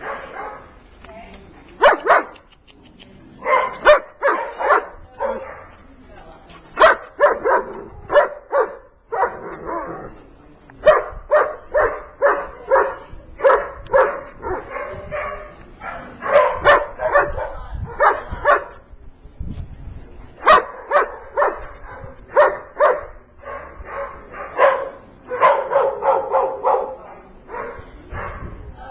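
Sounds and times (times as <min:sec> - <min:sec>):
dog barking: 0:00.0 - 0:00.7, 0:01.8 - 0:02.3, 0:03.4 - 0:05.7, 0:06.8 - 0:10.0, 0:10.8 - 0:18.7, 0:20.4 - 0:28.6.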